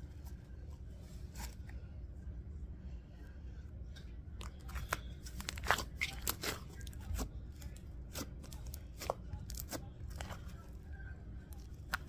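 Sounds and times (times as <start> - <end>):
slime crackling and popping: 4.7 - 10.5.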